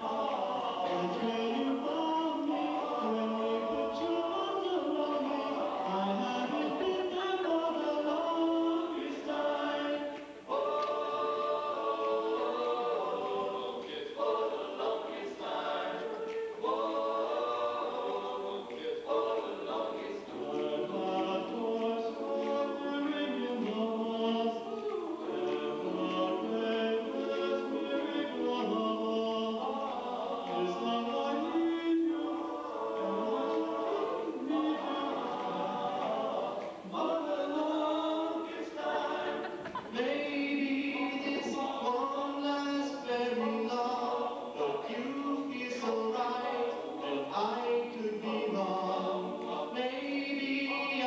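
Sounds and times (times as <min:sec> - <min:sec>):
men's choir singing a cappella: 0:00.0 - 0:51.0.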